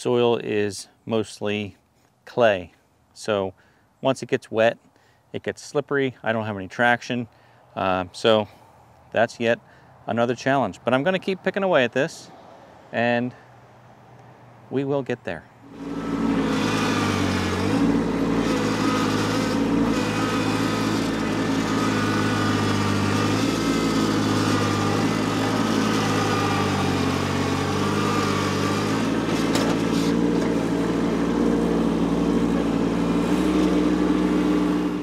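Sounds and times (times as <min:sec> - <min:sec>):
tractor diesel engine under load: 0:15.6 - 0:35.0.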